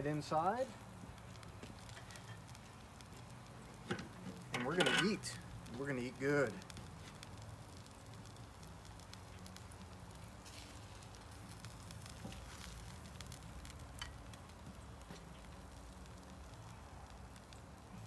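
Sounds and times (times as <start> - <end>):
meat sizzling on grill: 0.0 - 18.0
metal tongs clicking on grate: 4.5 - 5.2.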